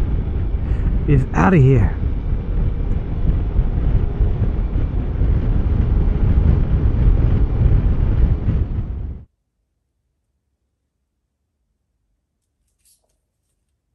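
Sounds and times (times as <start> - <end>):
wind buffeting microphone: 0.0 - 9.3.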